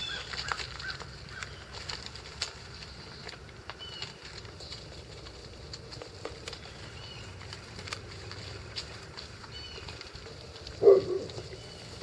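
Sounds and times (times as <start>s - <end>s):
bird chirps: 0.0s - 1.8s, 3.8s - 4.2s, 6.6s - 7.4s, 9.4s - 10.0s, 10.8s - 12.0s
paws rustling leaves: 0.0s - 12.0s.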